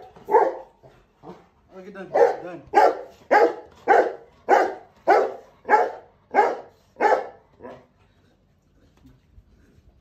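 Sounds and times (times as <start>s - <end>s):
dog barking: 0.0s - 1.4s, 2.1s - 7.8s.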